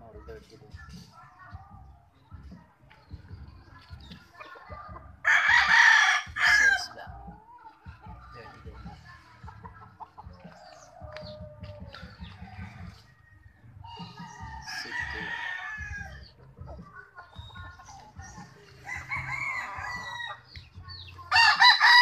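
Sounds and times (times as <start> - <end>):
roosters crowing: 4.7 - 7.4, 8.1 - 16.6, 17.6 - 22.0.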